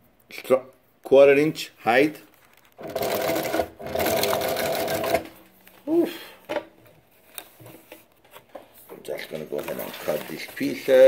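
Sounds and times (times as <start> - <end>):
sewing machine stitching leather: 2.7 - 5.4.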